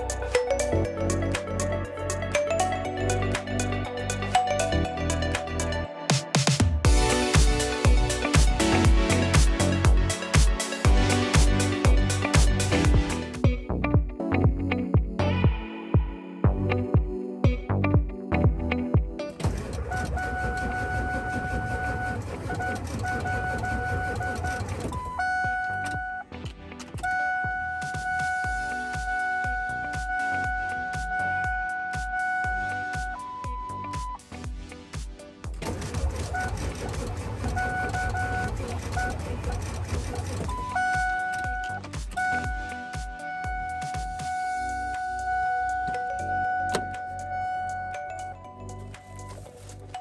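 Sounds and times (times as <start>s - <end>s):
background music: 0.0s - 50.0s
diesel engine cranking: 19.4s - 29.9s, 35.6s - 42.9s, 43.7s - 50.0s
electronic warning chime: 19.9s - 26.3s, 27.1s - 34.2s, 37.5s - 39.2s, 40.4s - 49.4s.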